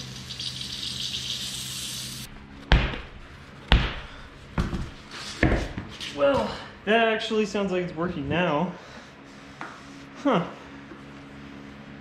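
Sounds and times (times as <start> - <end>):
tyre bouncing on concrete: 3.7 - 6.6.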